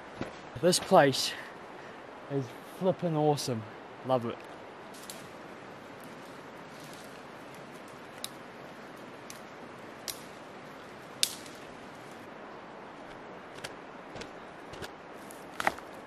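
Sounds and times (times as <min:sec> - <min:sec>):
background hiss: 0:00.0 - 0:16.0
dry twigs snapping: 0:04.4 - 0:12.3, 0:13.0 - 0:16.0.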